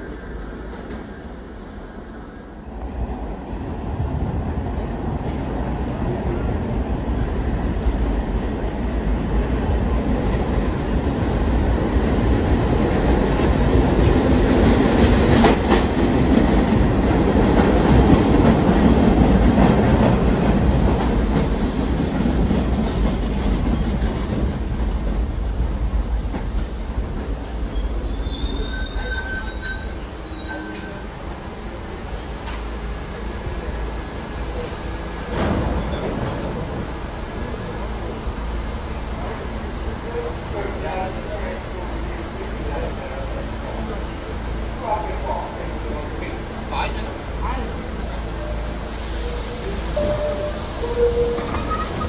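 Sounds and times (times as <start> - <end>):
subway train pulling in: 0.0 - 52.0
brake squeals: 27.7 - 31.1, 48.4 - 52.0.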